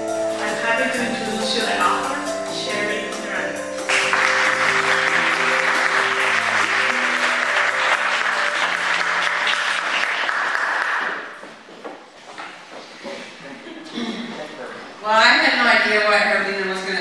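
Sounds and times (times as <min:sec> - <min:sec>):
held music notes: 0:00.0 - 0:10.2
audience applauding: 0:03.9 - 0:11.4.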